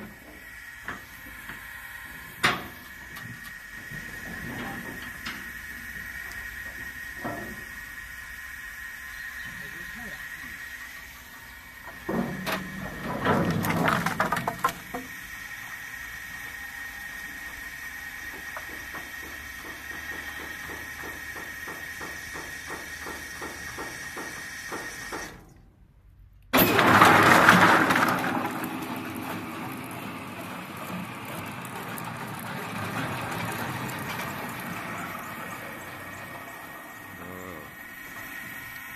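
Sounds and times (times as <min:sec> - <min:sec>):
motor hum: 0:00.0 - 0:25.7, 0:26.4 - 0:38.9
logs knocking and clattering: 0:12.2 - 0:15.0.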